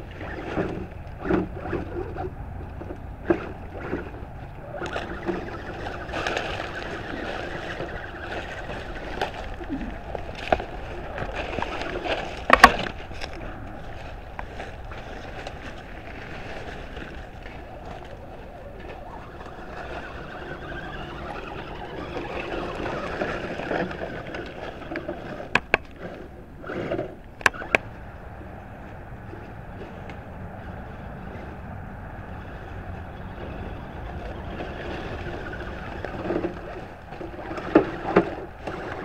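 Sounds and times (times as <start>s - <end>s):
toy truck motor whine: 3.3s - 13.3s, 14.3s - 25.7s, 32.4s - 39.0s
crackle of leaf litter: 4.8s - 25.2s
twigs snapping: 8.0s - 19.0s.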